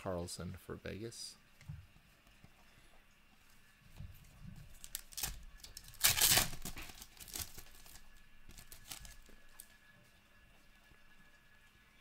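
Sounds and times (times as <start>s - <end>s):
foil wrapper tearing and crinkling: 4.7s - 9.7s.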